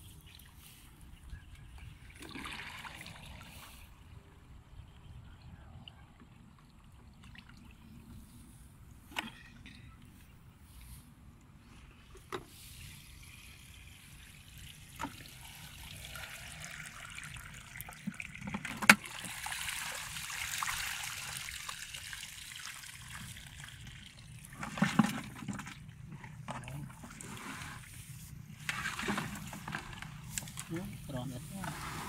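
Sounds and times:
water trickling and dripping: 12.8 - 24.6.

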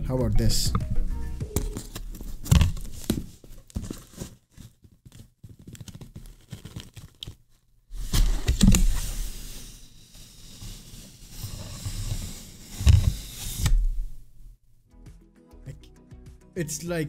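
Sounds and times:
rough cardboard rubbing: 7.9 - 14.2.

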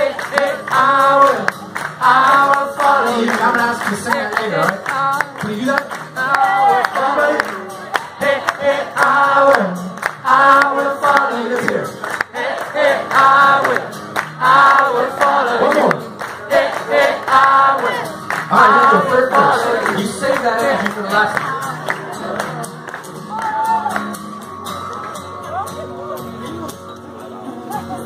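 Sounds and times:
person singing: 0.0 - 11.9, 16.9 - 22.6
strummed acoustic guitar: 0.0 - 28.0.

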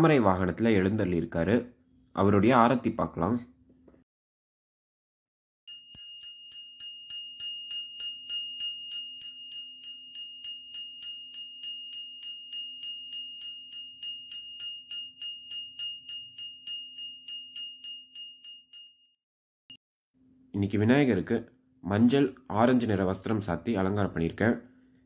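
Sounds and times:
hand bell ringing: 5.7 - 19.2.

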